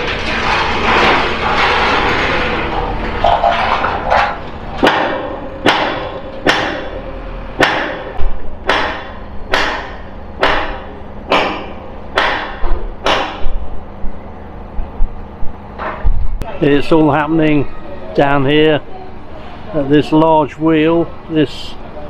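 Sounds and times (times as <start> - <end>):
hammer clanking on steel: 4.8 - 13.5.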